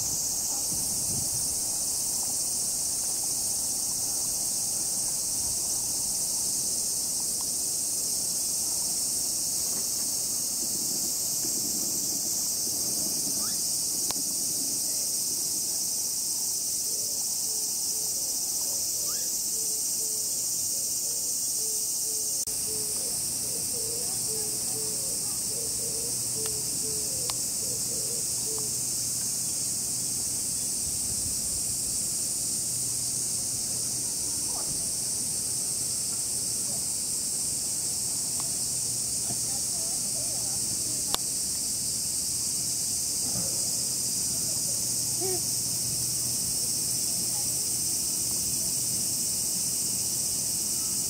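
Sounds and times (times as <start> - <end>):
cicadas droning: 0.0 - 51.0.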